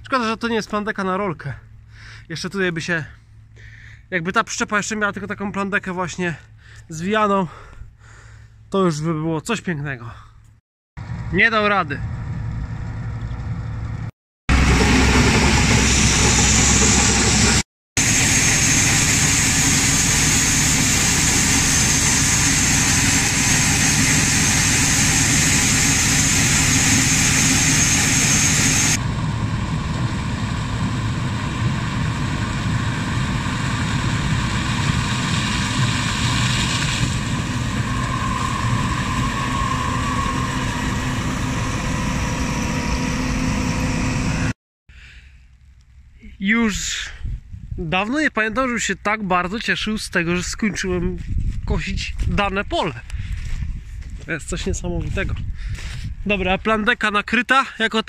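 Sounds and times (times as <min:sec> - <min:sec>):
combine harvester running: 0:11.0 - 0:44.6
grain pouring with high hiss: 0:18.0 - 0:29.0, 0:33.0 - 0:38.7.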